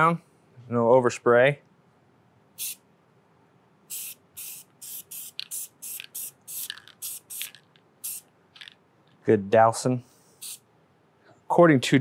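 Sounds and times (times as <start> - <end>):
aerosol can spraying: 2.6 - 2.8, 3.9 - 8.3, 10.4 - 10.6.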